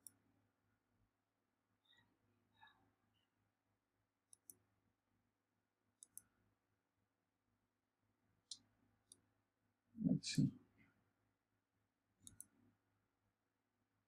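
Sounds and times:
faint computer mouse clicks: 0:04.3 - 0:04.6, 0:06.0 - 0:06.3, 0:12.2 - 0:12.6.

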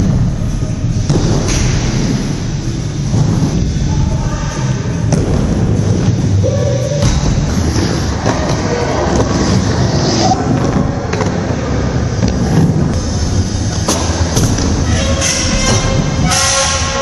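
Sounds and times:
skate wheels rumbling on wood: 0:07.4 - 0:16.3.

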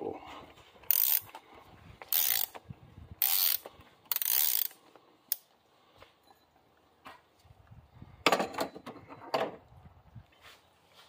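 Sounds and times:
ratchet wrench clicking: 0:00.9 - 0:01.3, 0:02.1 - 0:02.6, 0:03.2 - 0:05.5.

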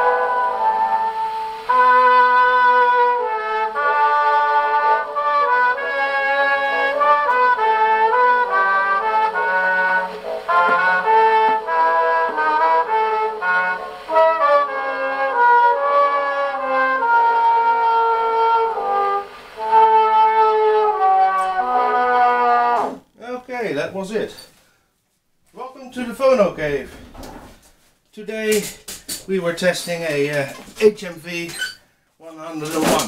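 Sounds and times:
gramophone playing brass music: 0:00.0 - 0:23.3.

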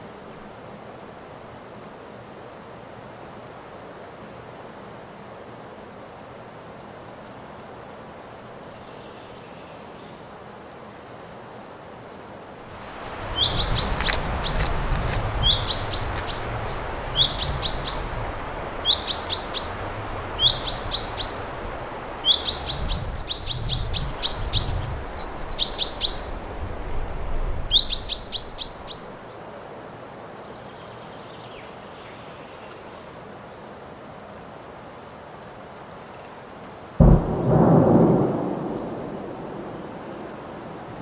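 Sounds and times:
chaffinch calling: 0:13.2 - 0:14.8, 0:15.4 - 0:26.4, 0:27.7 - 0:29.2.

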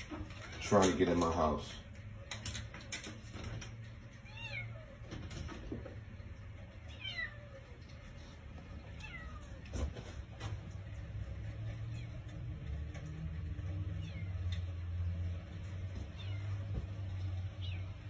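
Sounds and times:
paws tapping on glass door: 0:00.0 - 0:06.9, 0:07.5 - 0:18.0
cat meowing: 0:04.2 - 0:05.0, 0:06.8 - 0:07.7, 0:08.9 - 0:09.6, 0:13.8 - 0:14.6, 0:16.1 - 0:16.8.

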